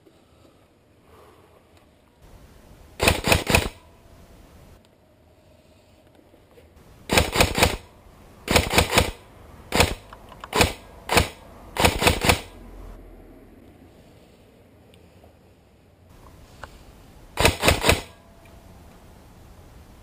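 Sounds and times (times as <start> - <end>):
airsoft rifle shots: 3.0 - 3.8, 7.1 - 12.6, 17.4 - 18.2.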